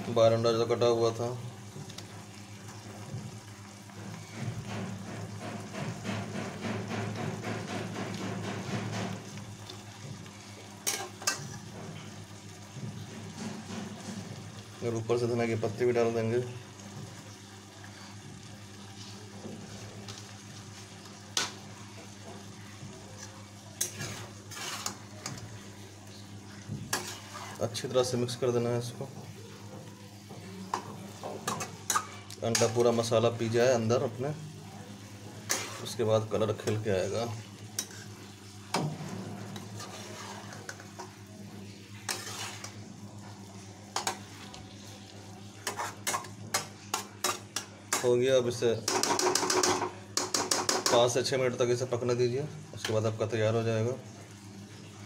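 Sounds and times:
curry simmering and sizzling: 0.0s - 55.0s
spatula knocking on pan: 4.7s - 9.3s
spatula scraping in a pan: 10.8s - 12.2s, 18.9s - 27.9s, 29.5s - 33.2s, 35.1s - 36.8s, 37.5s - 48.2s
spatula scraping through curry: 23.8s - 25.4s, 26.9s - 27.6s, 35.4s - 36.0s, 37.8s - 38.2s, 39.5s - 40.9s, 42.0s - 42.9s, 45.6s - 47.4s.

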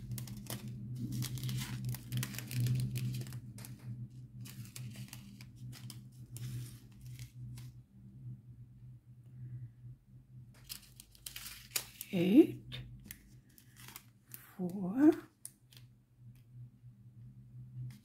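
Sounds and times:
plastic packets crinkling: 0.0s - 7.6s, 10.6s - 12.2s, 12.8s - 14.6s
steady low hum: 0.0s - 18.0s.

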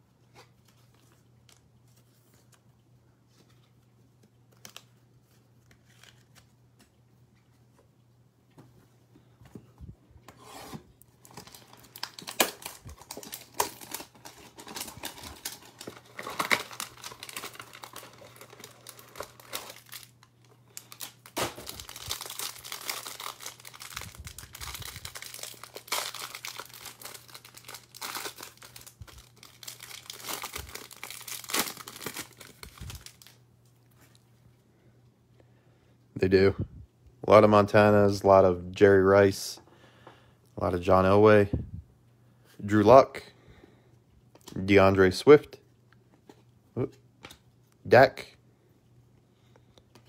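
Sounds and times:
plastic wrapping crinkling and tearing: 4.5s - 6.5s, 11.2s - 34.2s.

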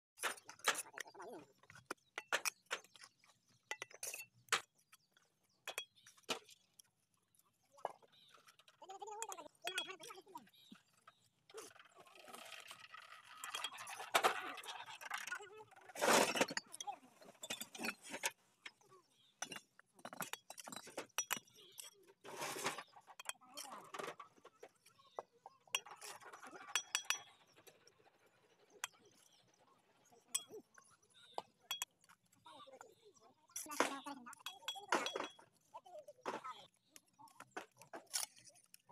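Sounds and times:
trowel clinking on bricks: 0.2s - 7.0s, 16.0s - 25.0s, 25.7s - 27.6s, 31.3s - 32.2s, 33.6s - 35.7s, 36.3s - 38.9s
trowel scraping mortar: 15.9s - 18.3s, 19.4s - 24.2s.

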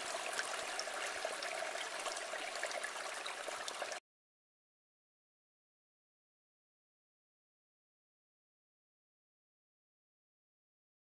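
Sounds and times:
stream running over rocks: 0.0s - 4.0s.

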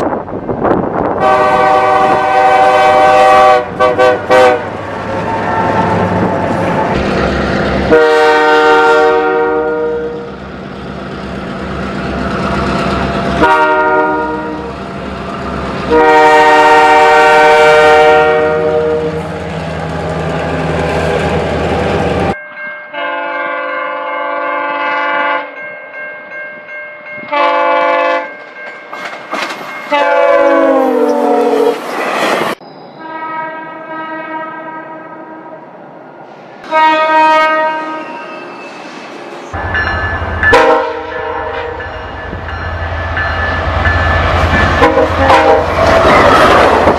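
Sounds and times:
moving train rumble: 0.0s - 46.9s
train horn blasts: 1.2s - 6.9s, 7.9s - 10.3s, 13.4s - 14.7s, 15.8s - 19.3s, 22.9s - 25.6s, 27.2s - 28.3s, 29.9s - 31.8s, 33.0s - 35.6s, 36.6s - 38.4s, 39.8s - 41.9s, 44.6s - 45.8s.

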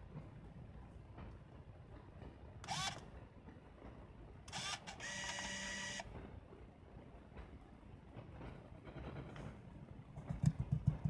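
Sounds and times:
camera motor whirring: 2.6s - 3.0s, 4.5s - 6.0s.

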